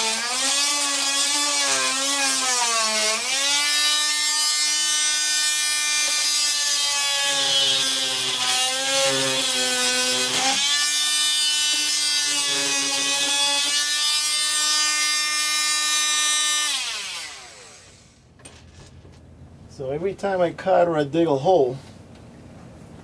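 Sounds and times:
power tool cutting: 0.0s - 18.2s.

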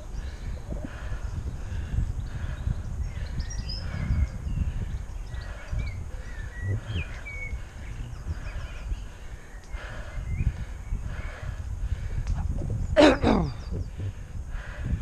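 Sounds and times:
songbirds chirping: 0.0s - 15.0s
wind buffeting microphone: 0.0s - 15.0s.

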